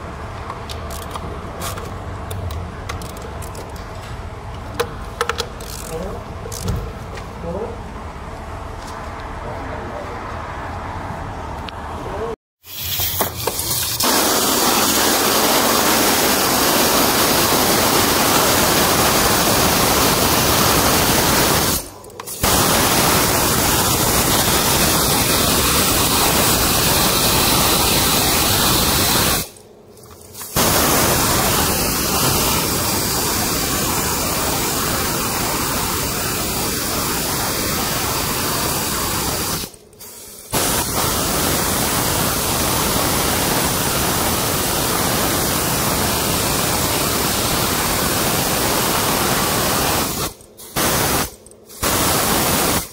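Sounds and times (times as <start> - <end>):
compressed air blow gun hissing: 13.9 - 29.5, 30.5 - 52.9.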